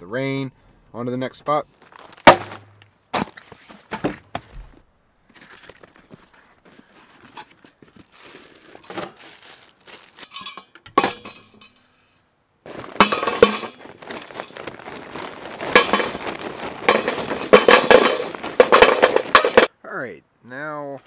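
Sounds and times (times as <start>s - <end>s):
wrapping crinkling: 5.4s - 10.6s, 12.6s - 19.7s
charcoal clattering into metal bowl: 10.2s - 11.8s, 12.9s - 19.7s
metal clank: 10.3s - 11.8s, 16.9s - 19.7s.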